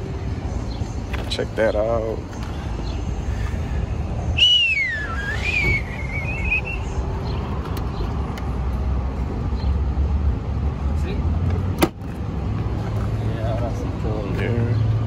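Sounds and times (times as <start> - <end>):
long wavering whistle: 4.4 - 6.9.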